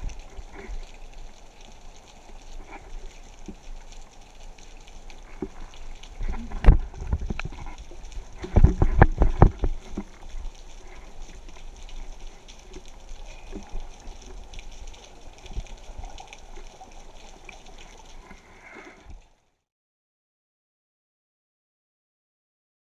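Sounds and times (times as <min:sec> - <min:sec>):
water sloshing and bubbling: 0:00.0 - 0:19.5
knocks and thumps on camera: 0:06.3 - 0:07.7, 0:08.4 - 0:09.8.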